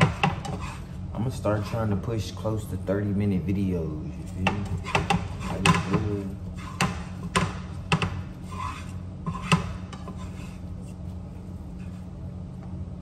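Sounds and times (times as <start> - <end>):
spatula scraping frying pan: 0.0 - 2.0, 4.2 - 11.1
steady low hum: 0.0 - 13.0.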